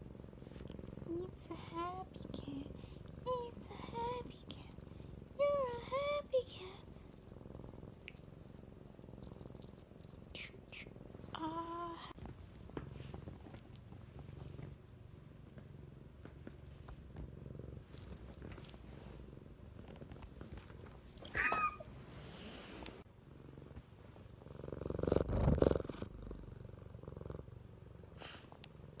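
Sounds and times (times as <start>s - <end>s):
cat purring: 0.0s - 29.0s
cat high-pitched call: 21.3s - 21.8s.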